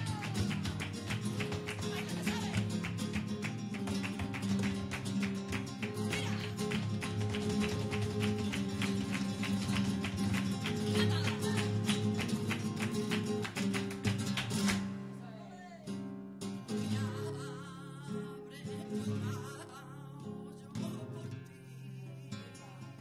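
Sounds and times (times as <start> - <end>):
flamenco guitar: 0.0 - 23.0.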